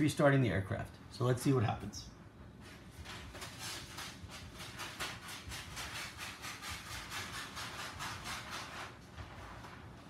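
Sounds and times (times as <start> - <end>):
rhythmic rasping sawing: 3.6 - 9.0.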